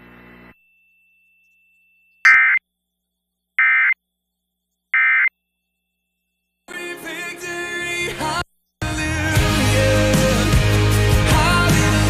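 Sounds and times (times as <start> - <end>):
buzzing data tone bursts: 2.2 - 2.6, 3.6 - 4.0, 5.0 - 5.3.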